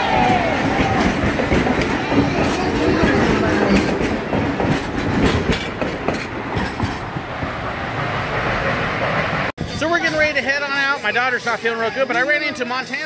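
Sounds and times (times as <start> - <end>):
wheels clattering over rail joints: 0.0 - 9.5
steam train rumbling past: 0.0 - 11.4.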